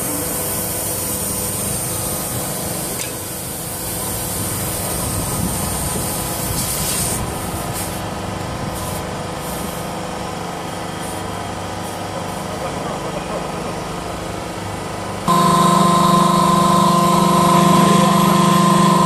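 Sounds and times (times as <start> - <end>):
machine hum: 12.7 - 19.0.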